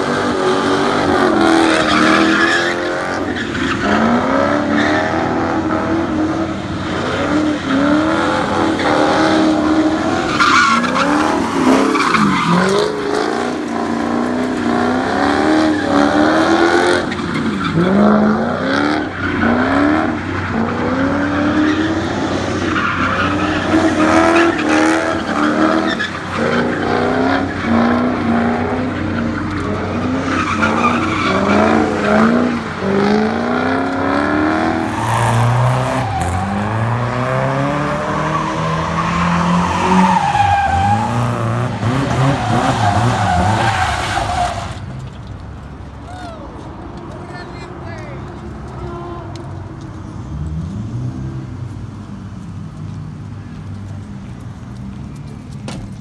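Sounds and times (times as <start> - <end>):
car engine revving: 0.0 - 44.8
tyre skid noise: 0.0 - 45.3.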